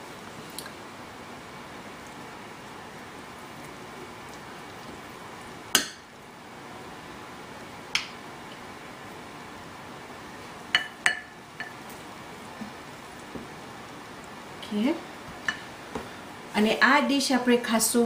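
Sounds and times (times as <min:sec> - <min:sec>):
spoon clinking on ceramic bowl: 0:10.8 - 0:11.8.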